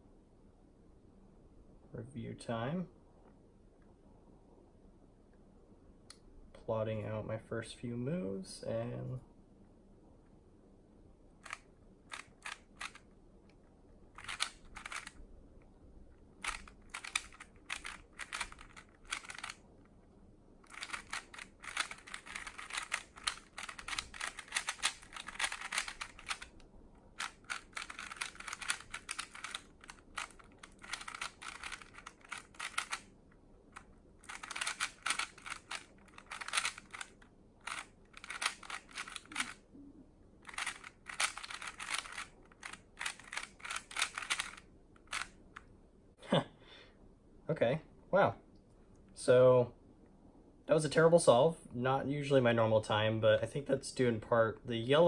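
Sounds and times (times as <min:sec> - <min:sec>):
puzzle cube clicking: 0:11.4 - 0:15.2, 0:16.1 - 0:20.0, 0:20.6 - 0:39.6, 0:40.4 - 0:45.6.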